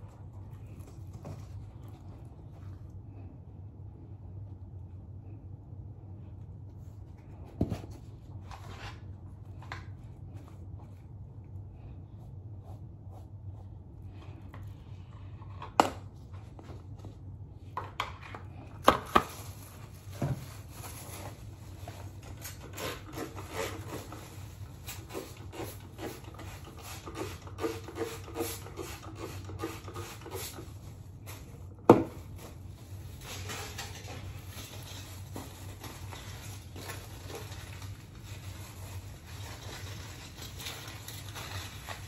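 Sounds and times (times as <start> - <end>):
steady low hum: 0.0 - 28.4.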